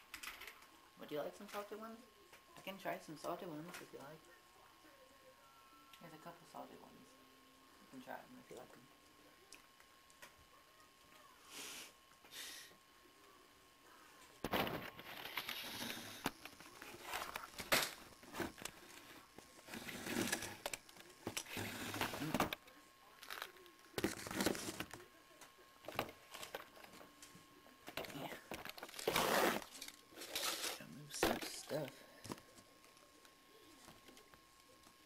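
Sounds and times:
crinkling packaging handling: 0:23.2 - 0:25.0, 0:28.0 - 0:30.8.

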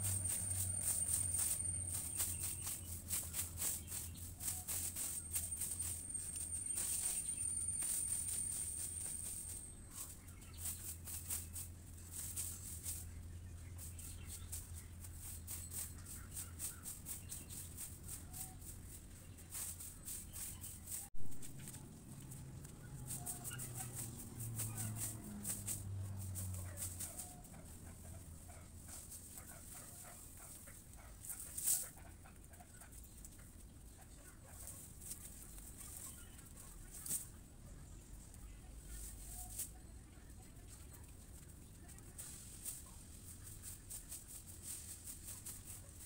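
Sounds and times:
steady low hum: 0:00.0 - 0:32.4.

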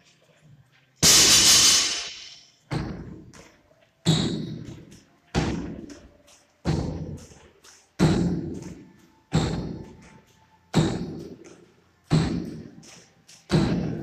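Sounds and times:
feet landing with heavy thuds: 0:02.7 - 0:10.1, 0:13.5 - 0:14.0.

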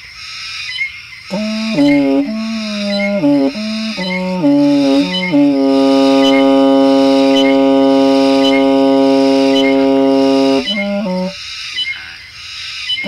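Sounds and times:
long held musical note: 0:01.3 - 0:11.4
short musical notes: 0:01.3 - 0:11.4.

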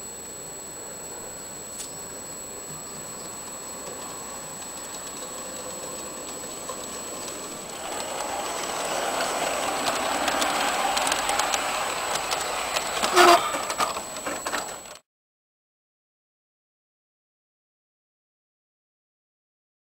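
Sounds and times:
model train running past: 0:00.8 - 0:15.0
wheels clicking over rail joints: 0:03.4 - 0:15.0.

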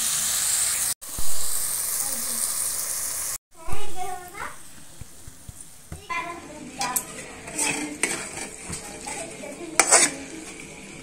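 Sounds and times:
spatula scraping metal pan: 0:06.4 - 0:11.0.

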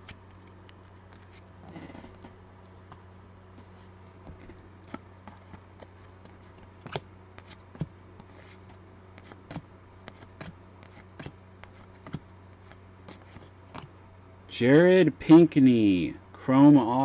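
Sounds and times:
cards flipping and clicking: 0:09.2 - 0:13.9.

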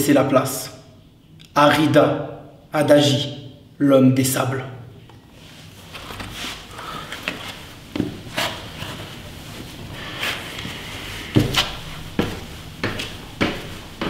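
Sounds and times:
footsteps on concrete stairs: 0:07.1 - 0:08.5, 0:11.3 - 0:14.0.

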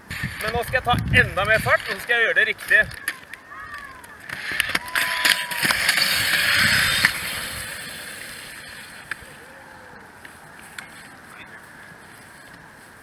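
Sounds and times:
roller-ski wheels rolling on asphalt: 0:00.0 - 0:13.0
ski poles clicking: 0:00.2 - 0:07.3.

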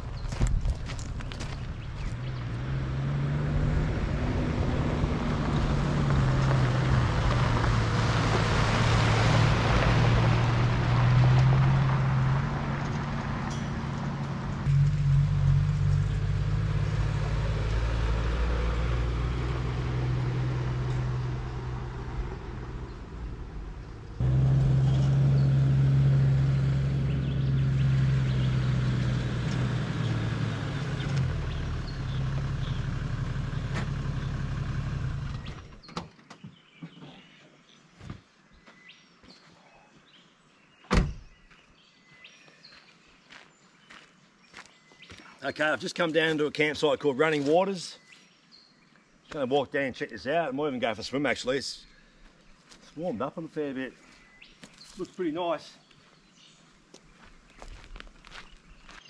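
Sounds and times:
car engine hum: 0:00.0 - 0:35.8
road and tyre noise: 0:00.0 - 0:39.4, 0:40.8 - 0:59.0.

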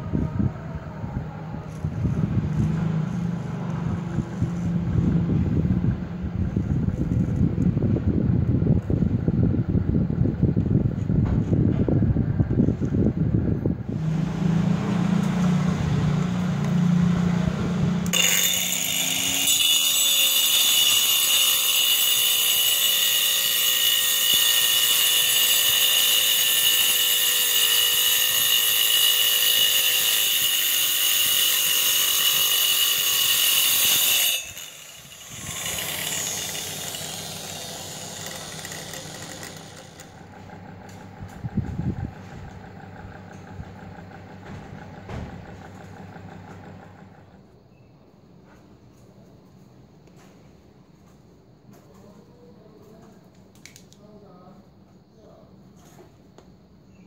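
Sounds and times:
low wavering hum: 0:00.0 - 0:18.2
angle grinder whining: 0:01.6 - 0:07.4, 0:13.9 - 0:47.4.

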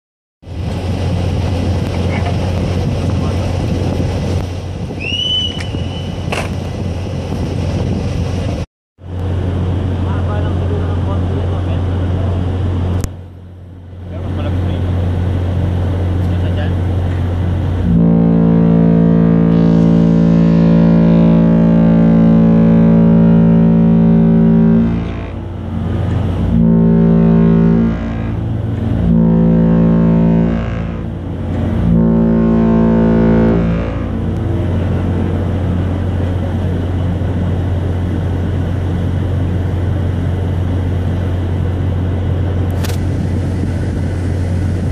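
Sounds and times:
wind on microphone: 0:00.4 - 0:10.0, 0:17.4 - 0:44.9
constant low rumble: 0:00.4 - 0:44.9
ship machinery hum: 0:00.4 - 0:44.9
whistle-like tone: 0:05.0 - 0:06.2.

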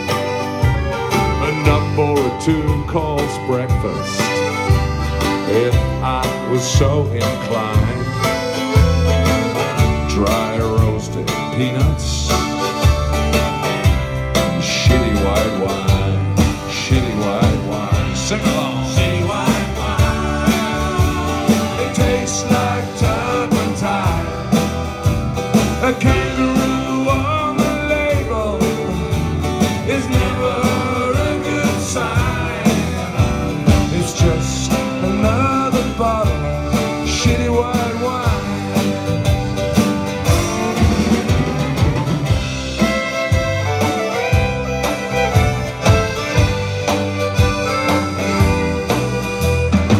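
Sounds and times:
accordion: 0:00.0 - 0:49.9
banjo: 0:00.0 - 0:49.9
drums: 0:00.0 - 0:49.9
fiddle: 0:00.0 - 0:49.9
strummed acoustic guitars: 0:00.0 - 0:49.9
people singing: 0:14.6 - 0:24.9, 0:25.8 - 0:38.9.

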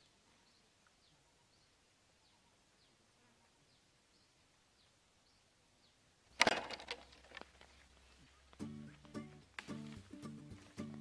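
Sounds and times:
faint high bird chirps: 0:00.0 - 0:06.0.

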